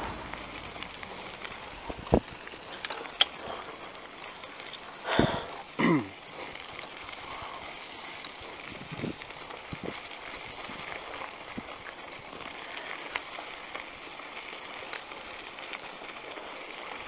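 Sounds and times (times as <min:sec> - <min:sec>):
wind noise: 0:00.0 - 0:02.8, 0:08.4 - 0:12.5
bicycle rolling on dirt: 0:00.0 - 0:17.0.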